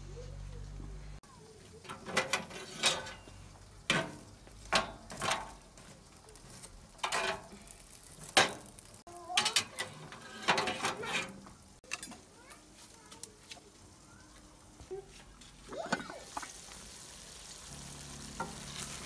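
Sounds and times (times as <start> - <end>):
metal tongs scraping coals: 1.7 - 13.8, 18.2 - 19.0.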